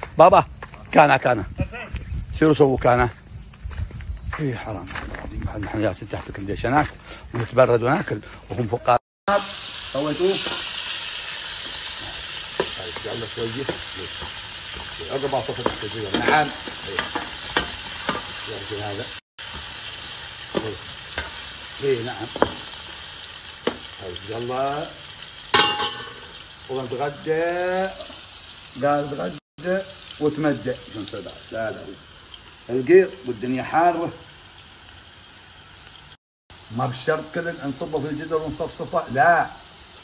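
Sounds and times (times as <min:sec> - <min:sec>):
potatoes sizzling in hot oil: 0:09.3 - 0:40.0
metal ladle knocking and scraping pot: 0:25.6 - 0:26.2.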